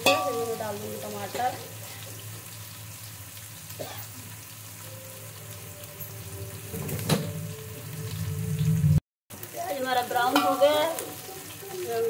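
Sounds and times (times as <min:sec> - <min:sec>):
onions sizzling in hot oil: 0:00.0 - 0:12.0
low hum: 0:04.9 - 0:09.0.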